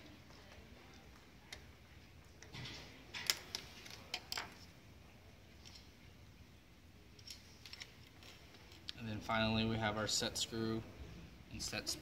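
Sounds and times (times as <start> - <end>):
small parts clicking and tapping: 2.4 - 4.6.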